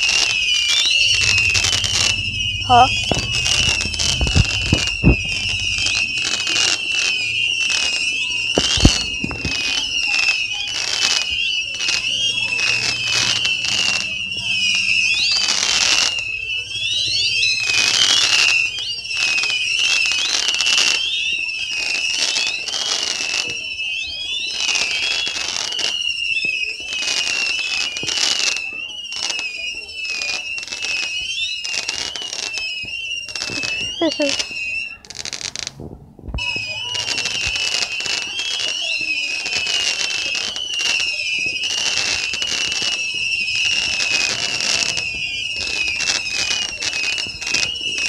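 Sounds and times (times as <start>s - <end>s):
crackling pops: 0.0s - 9.9s
firework thumps: 0.0s - 10.0s, 35.2s - 38.0s
sharp firework bang: 0.0s - 18.3s
whistling fireworks: 0.0s - 48.0s.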